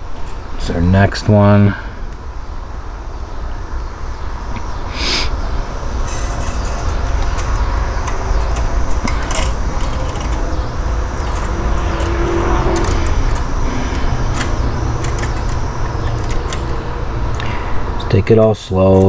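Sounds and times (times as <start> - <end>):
steady low rumble: 0.0 - 18.7
clicks and rattles of parts: 6.0 - 17.6, 18.8 - 19.0.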